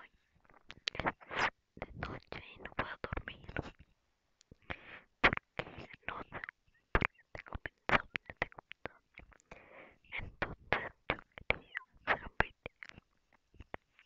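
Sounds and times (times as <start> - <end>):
breathy whispering: 0.0 - 3.8, 4.5 - 14.0.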